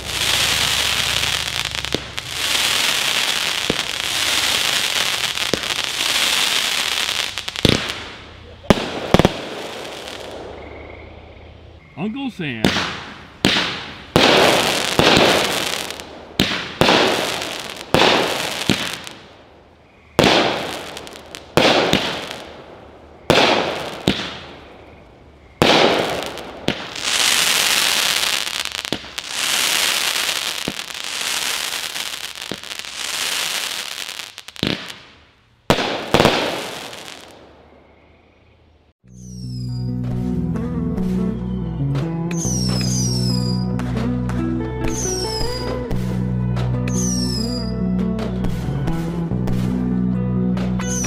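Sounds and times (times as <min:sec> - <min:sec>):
firework crackling sizzle: 0:00.0 - 0:10.6, 0:12.6 - 0:19.6, 0:20.2 - 0:24.9, 0:25.6 - 0:37.4, 0:42.3 - 0:43.5
firework reports: 0:00.0 - 0:19.5, 0:20.1 - 0:25.0, 0:25.6 - 0:37.7, 0:42.3 - 0:43.8.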